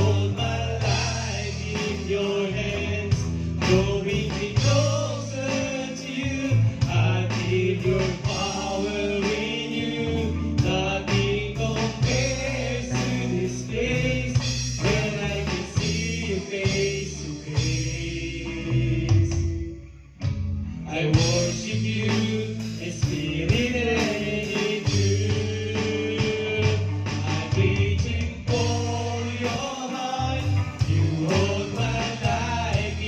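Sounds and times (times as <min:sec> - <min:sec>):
man singing into microphone: 0:00.0 - 0:19.7, 0:20.8 - 0:33.0
bass line: 0:00.0 - 0:33.0
electric keyboard: 0:00.0 - 0:33.0.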